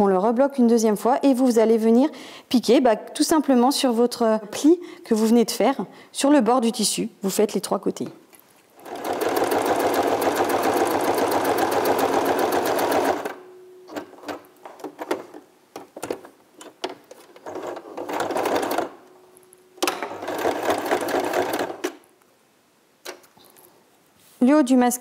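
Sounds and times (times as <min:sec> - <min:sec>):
sewing machine stitching: 0:08.8 - 0:13.4, 0:17.4 - 0:19.0, 0:19.9 - 0:22.0.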